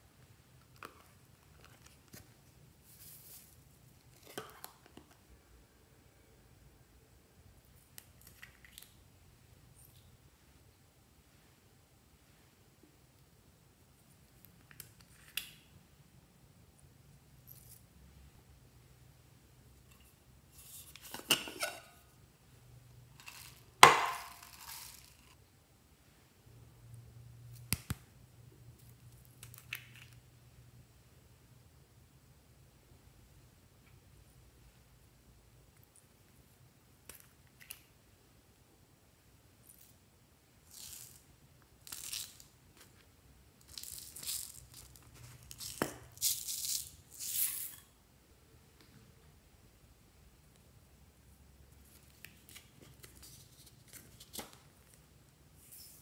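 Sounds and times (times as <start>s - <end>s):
foam beads spilling into dish: 23.2s - 25.2s.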